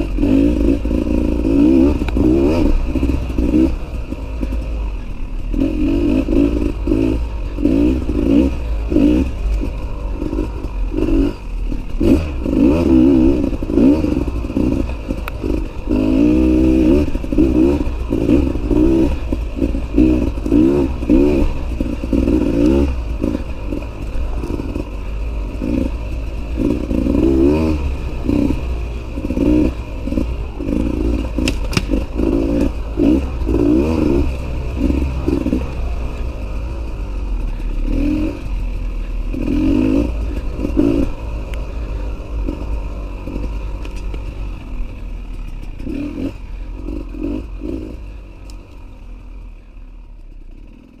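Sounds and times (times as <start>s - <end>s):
dirt bike engine revving: 0.0s - 51.0s
clatter and sharp knocks: 31.4s - 32.6s.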